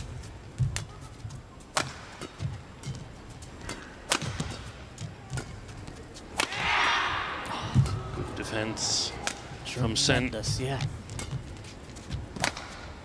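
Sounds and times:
rackets striking shuttlecock: 1.7s - 5.6s, 6.3s - 6.8s, 9.2s - 9.6s, 12.2s - 13.0s.

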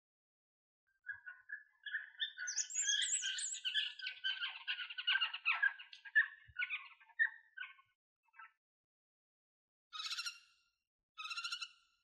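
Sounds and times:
owl chattering calls: 1.1s - 7.3s.

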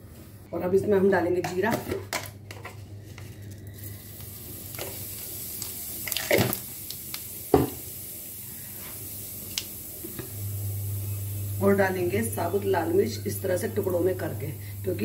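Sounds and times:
seeds sizzling in hot oil: 3.2s - 15.0s.

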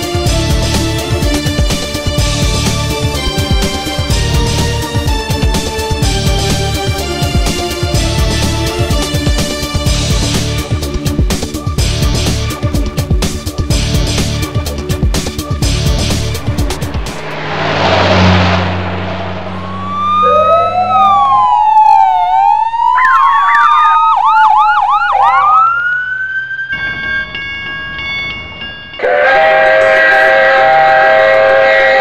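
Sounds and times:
whoosh: 15.6s - 22.0s
siren-like gliding tones: 15.8s - 27.5s
short swooping tones: 16.0s - 21.9s.

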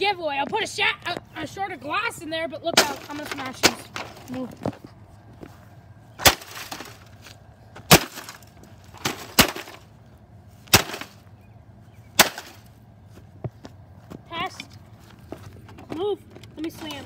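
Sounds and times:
baseball bat smashing tv casing: 6.2s - 7.2s, 7.9s - 9.9s, 10.7s - 11.2s, 12.2s - 12.6s.

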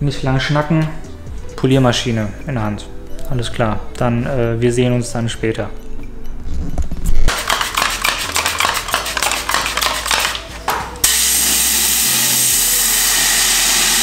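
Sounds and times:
loud steady hiss: 11.0s - 14.0s.

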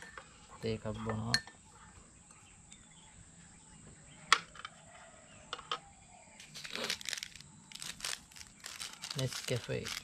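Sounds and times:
coffee sachet rustling: 6.4s - 10.0s.

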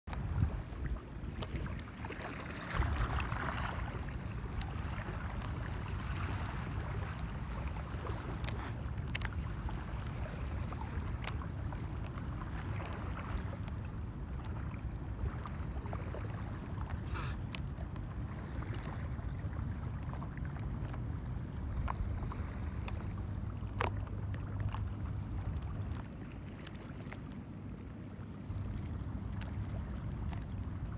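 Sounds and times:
wind buffeting microphone: 0.1s - 1.6s
water lapping against hull: 0.1s - 30.9s
wind rumble on microphone: 0.1s - 30.9s.

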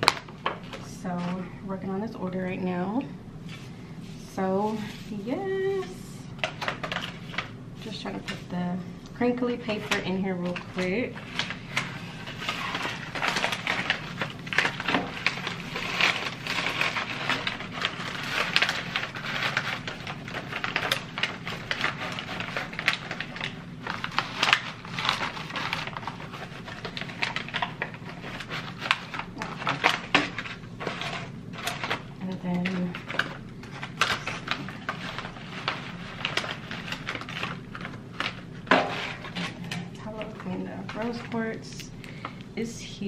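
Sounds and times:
paper and foil pouch crackling: 4.6s - 8.5s, 9.3s - 41.8s.

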